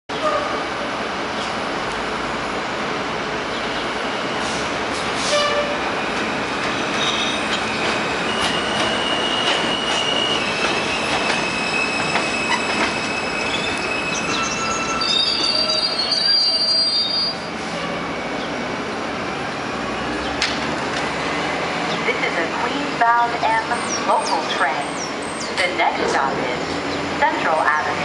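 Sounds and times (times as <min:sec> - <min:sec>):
subway cars rumbling on tracks: 0:00.1 - 0:28.0
high-pitched brake squeal: 0:07.0 - 0:18.1.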